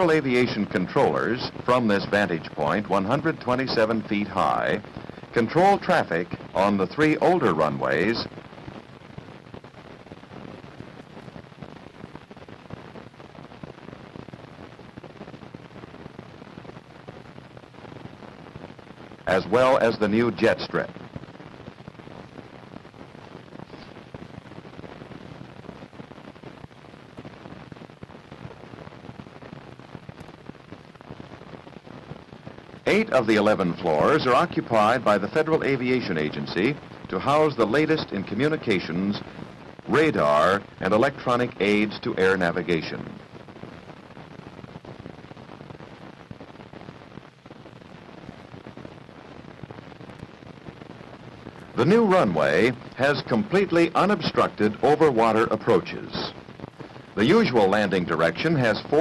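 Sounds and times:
old film soundtrack hiss: 0:00.0 - 0:59.0
clicks and pops: 0:28.3 - 0:31.4.

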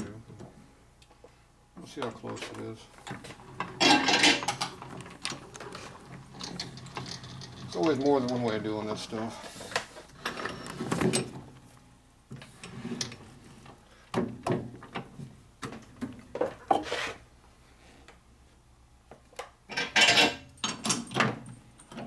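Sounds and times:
metal clanks knocks and scrapes: 0:02.3 - 0:11.4, 0:16.4 - 0:17.2, 0:19.7 - 0:21.4.

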